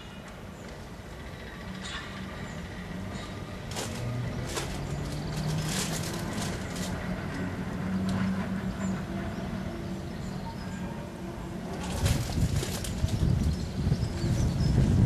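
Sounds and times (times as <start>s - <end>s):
train wheels clicking: 1.6s - 9.3s.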